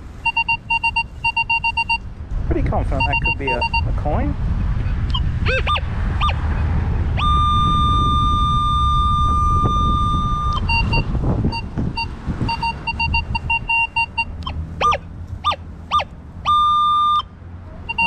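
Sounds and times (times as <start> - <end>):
metal detector beeping: 0.2 - 2.1, 2.9 - 4.0, 5.1 - 6.4, 7.2 - 17.3
metal detector chirps: 0.2 - 2.1, 2.9 - 4.0, 5.1 - 6.6, 7.2 - 17.3.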